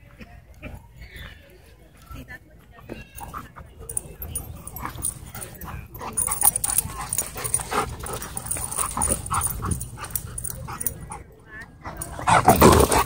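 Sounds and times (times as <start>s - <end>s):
dogs playing and vocalizing: 2.7s - 13.0s.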